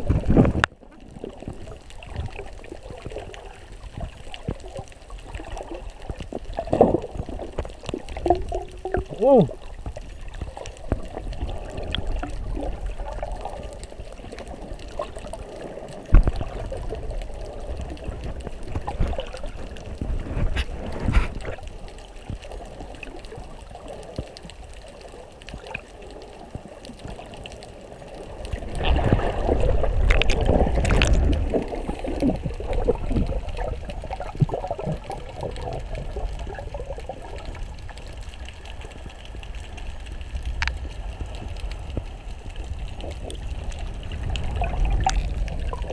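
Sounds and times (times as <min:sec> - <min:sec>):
water sloshing and bubbling: 0:00.0 - 0:45.9.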